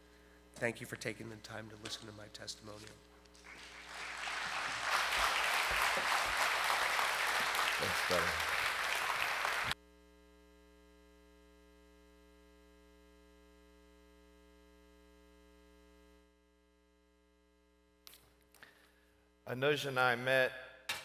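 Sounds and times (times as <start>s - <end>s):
faint electrical hum: 0.0s - 21.0s
congregation applauding: 3.4s - 9.8s.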